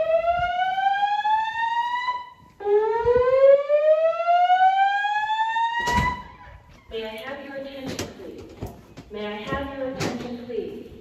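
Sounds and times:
fire alarm whoop tone: 0:00.0 - 0:06.5.

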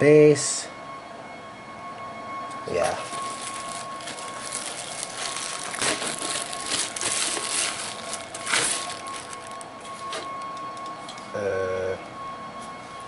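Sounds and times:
plastic wrap crinkling: 0:02.8 - 0:10.4.

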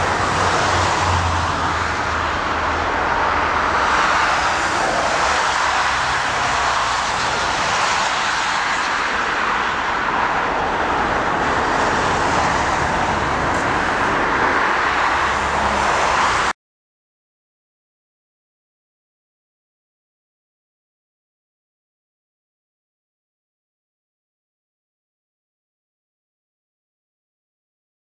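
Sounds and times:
jet engines roaring: 0:00.0 - 0:16.5.

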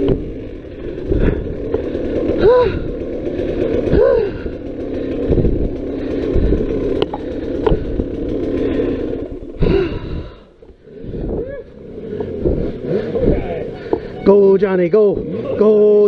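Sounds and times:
dirt bike engine revving: 0:00.0 - 0:16.0.

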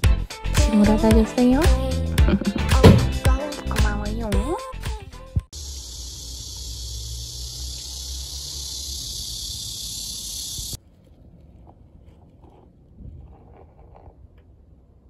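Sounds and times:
high-pitched hiss: 0:05.6 - 0:10.8.

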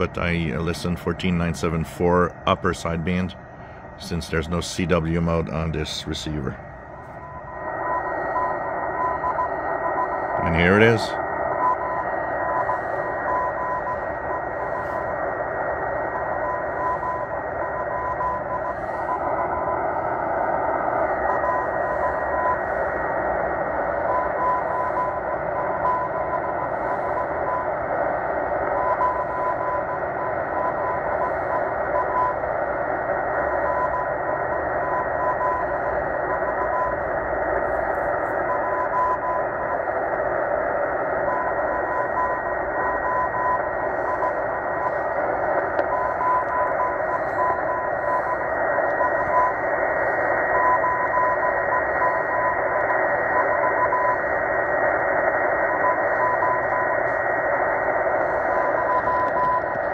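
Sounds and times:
faint steady whistle: 0:00.0 - 0:59.9
static hiss: 0:00.0 - 0:59.9
morse code beeping: 0:58.2 - 0:59.9.

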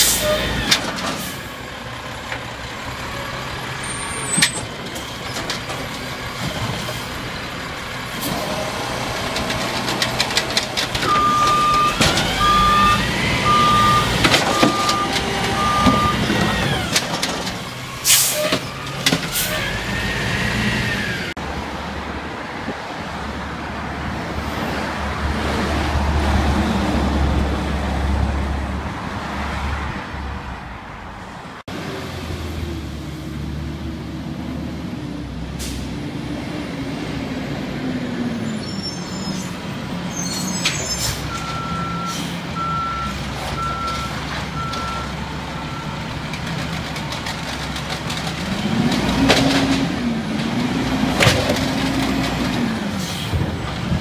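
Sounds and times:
air brakes hissing: 0:00.0 - 0:00.6, 0:18.0 - 0:18.6, 0:35.6 - 0:36.0, 0:42.0 - 0:42.5, 0:53.0 - 0:53.4
truck driving past: 0:00.0 - 0:16.9
garbage truck diesel engine: 0:00.0 - 0:54.0
short beeps: 0:11.1 - 0:16.2.

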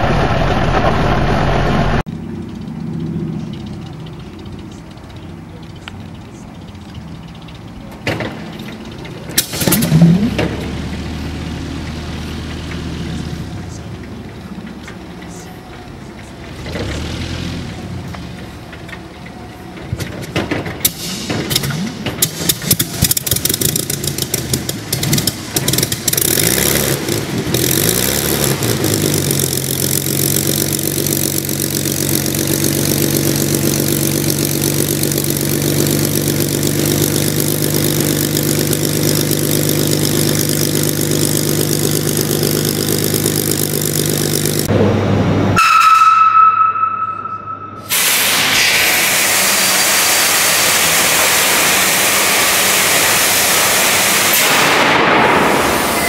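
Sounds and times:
high whine: 0:00.0 - 0:16.8, 0:20.8 - 0:56.0
loud steady rushing hiss: 0:47.9 - 0:56.0.

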